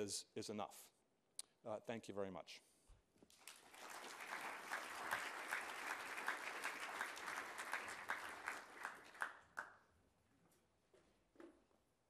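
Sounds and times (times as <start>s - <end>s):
audience applauding: 3.3s - 9.8s.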